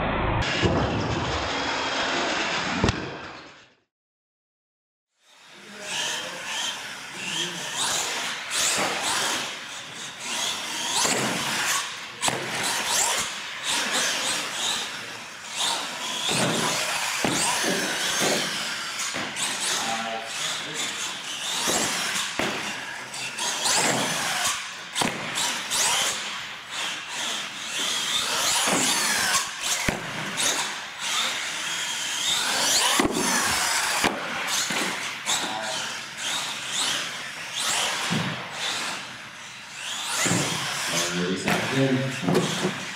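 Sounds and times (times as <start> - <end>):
toy truck electric motor whine: 5.2 - 42.9.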